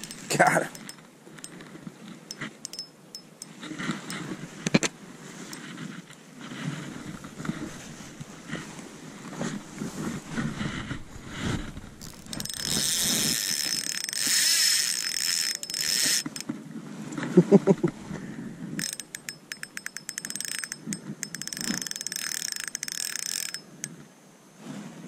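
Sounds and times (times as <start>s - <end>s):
fishing reel gears whirring: 0.0s - 1.7s, 2.3s - 4.4s, 12.0s - 16.5s, 18.7s - 23.9s
reel rapid fine clicking: 0.0s - 1.7s, 2.3s - 4.4s, 12.0s - 16.5s, 18.7s - 24.0s.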